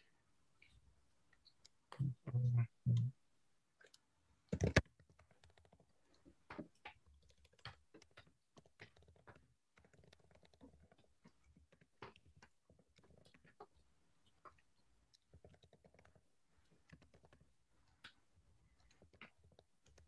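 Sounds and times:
keyboard typing: 3.8s - 5.8s, 6.6s - 11.0s.

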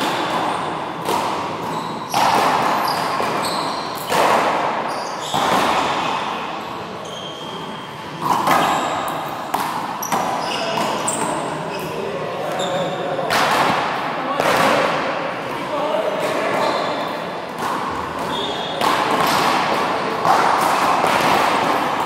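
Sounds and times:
handball hitting wall: 0.0s - 6.3s, 8.2s - 11.4s, 13.3s - 15.1s, 16.2s - 22.0s
sneakers squeaking on court: 0.1s - 13.0s, 16.2s - 17.2s, 17.9s - 18.9s.

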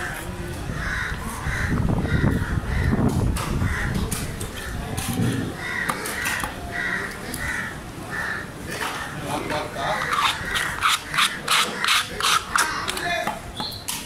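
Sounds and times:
crows cawing: 0.0s - 3.0s, 5.5s - 9.2s.

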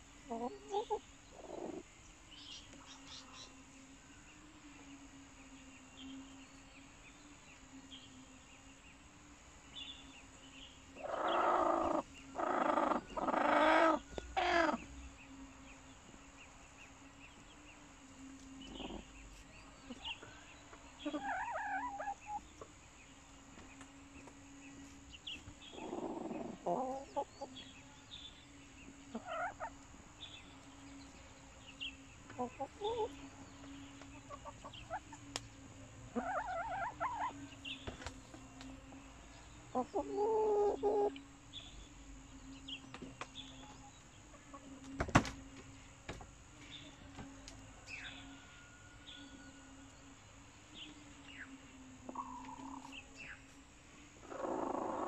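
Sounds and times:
low steady hum: 0.0s - 55.0s
hens squawking and clucking: 11.0s - 15.0s, 21.0s - 22.8s, 25.7s - 27.6s, 29.0s - 29.8s, 32.3s - 35.2s, 36.1s - 37.5s, 39.7s - 41.2s, 54.2s - 55.0s.

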